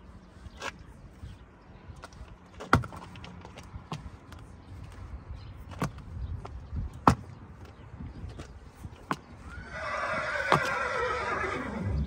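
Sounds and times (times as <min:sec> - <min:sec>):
horse whinnying: 0:09.4 - 0:12.0.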